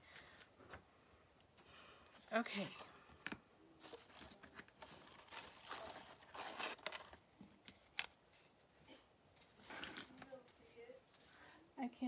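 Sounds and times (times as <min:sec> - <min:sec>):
paper rustling and scraping: 0:03.8 - 0:08.6, 0:09.4 - 0:10.8.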